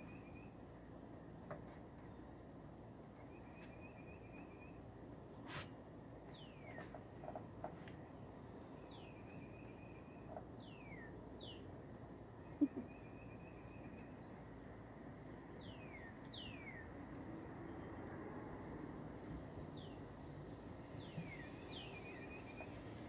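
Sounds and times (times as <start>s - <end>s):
birds singing: 0.0s - 1.0s, 6.3s - 18.2s, 19.6s - 20.1s, 20.9s - 23.0s
faint outdoor hiss: 0.0s - 23.0s.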